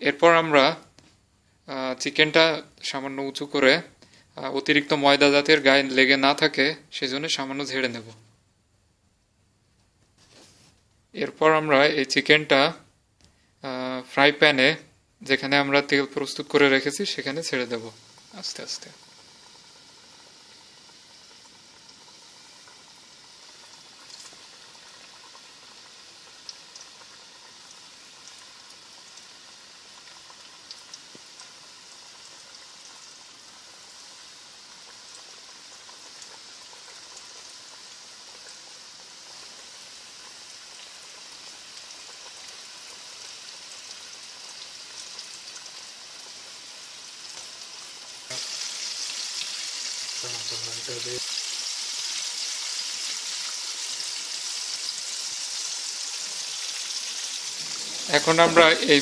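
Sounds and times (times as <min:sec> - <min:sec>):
chicken deep-frying in oil: 0:14.2 - 0:59.0.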